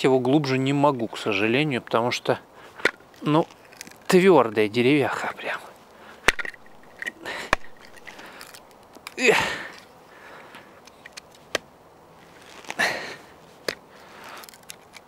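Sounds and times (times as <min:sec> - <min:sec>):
knife cracking into wood: 0:06.2 - 0:09.9, 0:13.6 - 0:15.0.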